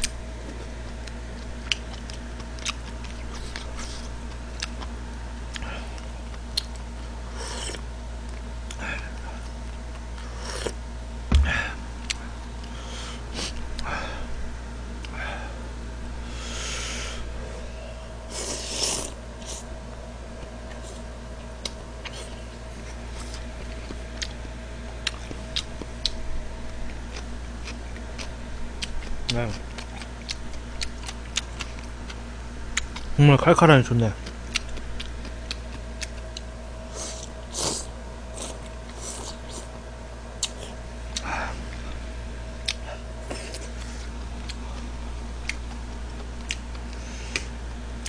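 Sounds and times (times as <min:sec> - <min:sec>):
steady low hum: 0:00.0 - 0:48.0
person slurping noodles: 0:18.3 - 0:19.6.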